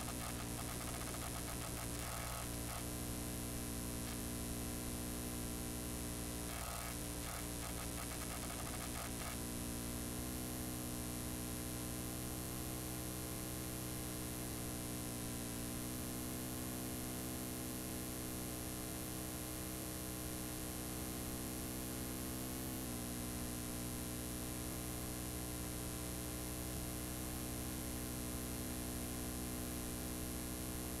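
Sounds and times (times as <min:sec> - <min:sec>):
electrical mains hum: 0:00.0 - 0:10.2
tape hiss: 0:00.0 - 0:31.0.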